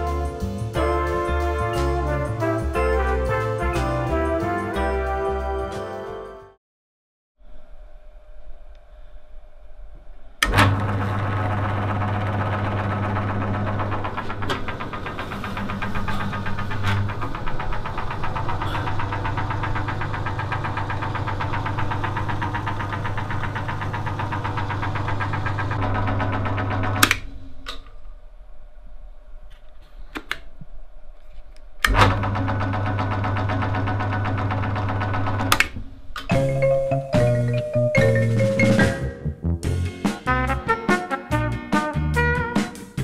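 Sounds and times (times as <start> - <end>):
drill press motor humming: 10.4 - 27.3, 31.8 - 35.7.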